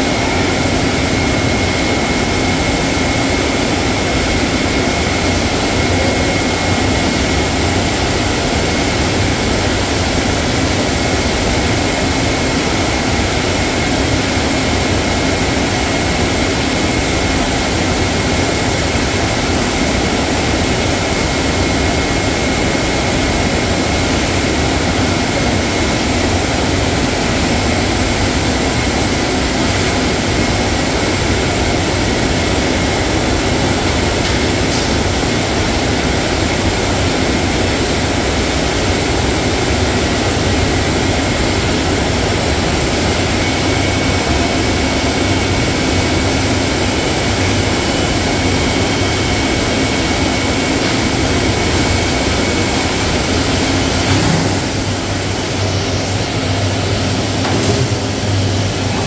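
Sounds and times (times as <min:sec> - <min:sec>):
machinery running: 0:00.0 - 0:59.0.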